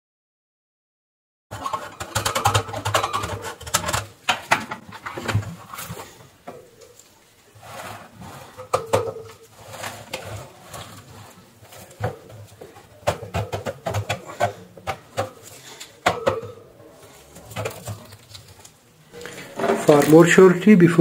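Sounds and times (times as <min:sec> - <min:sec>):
plastic cage clicking and knocking: 0:01.5 - 0:05.9, 0:08.6 - 0:11.1, 0:11.7 - 0:16.6, 0:17.4 - 0:18.6.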